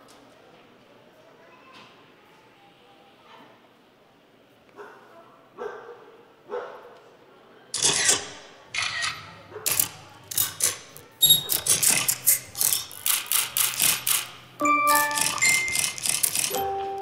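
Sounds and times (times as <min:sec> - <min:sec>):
dog barking: 0:04.8 - 0:07.0.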